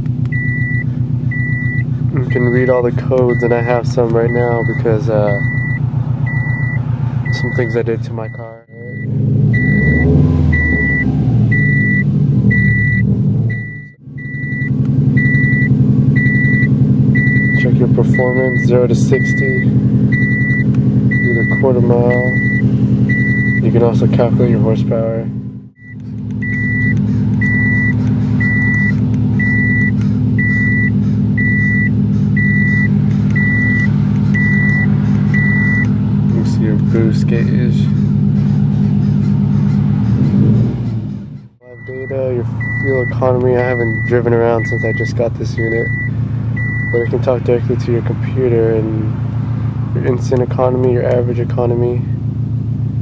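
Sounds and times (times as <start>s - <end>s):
car engine running: 0.0s - 53.0s
high beep: 0.3s - 2.6s, 3.2s - 23.7s, 25.8s - 35.9s, 41.6s - 47.1s.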